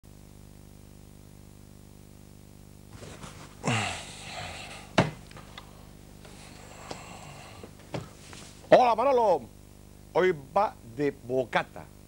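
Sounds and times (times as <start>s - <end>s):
low electrical hum: 0.0s - 12.0s
knocks and rustles: 2.9s - 3.6s, 7.6s - 8.7s.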